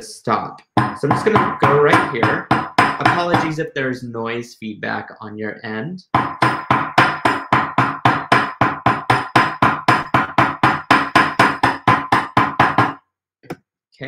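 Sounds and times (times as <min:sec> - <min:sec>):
hammer striking wire on anvil: 0:00.8 - 0:03.5, 0:06.2 - 0:13.0.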